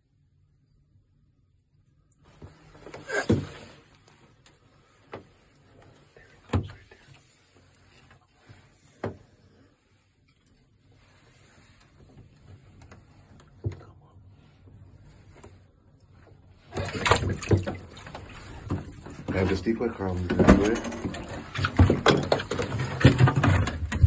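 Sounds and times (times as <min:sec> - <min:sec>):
sharp knocks and creaks: 0:18.6 - 0:24.0.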